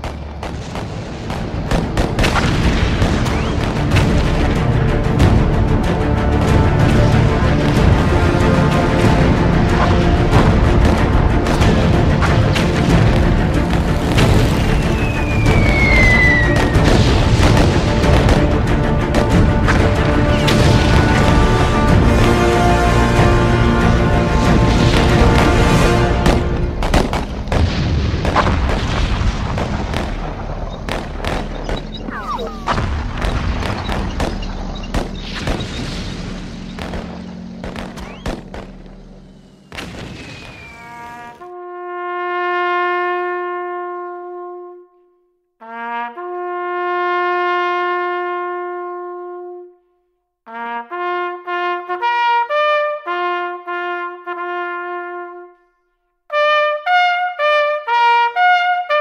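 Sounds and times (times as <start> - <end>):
gunfire: 0.0 - 4.7, 24.7 - 41.1
explosions: 0.0 - 5.4, 9.0 - 22.5, 23.7 - 41.3
solo trumpet call: 40.4 - 49.9, 50.5 - 59.0.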